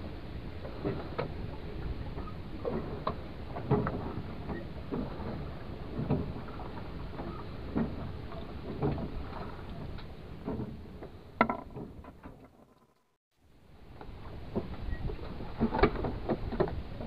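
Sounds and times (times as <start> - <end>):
wind and sea noise: 0.0 - 12.5, 13.5 - 17.0.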